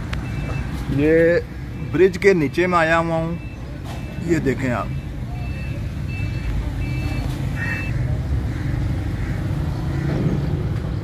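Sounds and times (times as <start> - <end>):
traffic engine rumble: 0.0 - 11.0
high electronic beep: 3.3 - 7.9.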